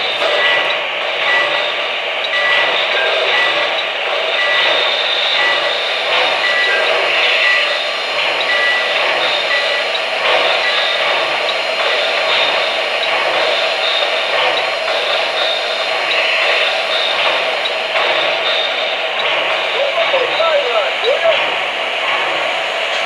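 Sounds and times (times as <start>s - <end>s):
model train hissing rush: 0.0s - 23.0s.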